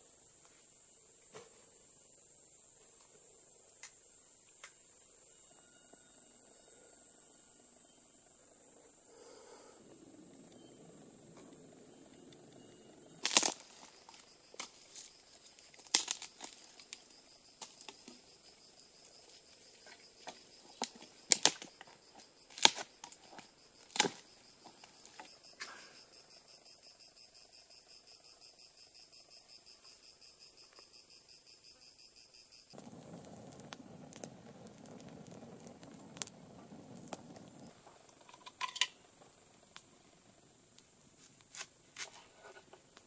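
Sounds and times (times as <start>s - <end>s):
pulsing cricket trill: 10.5s - 39.8s
dry sticks snapping: 13.2s - 15.1s, 15.7s - 17.0s, 20.3s - 21.8s, 22.5s - 24.2s.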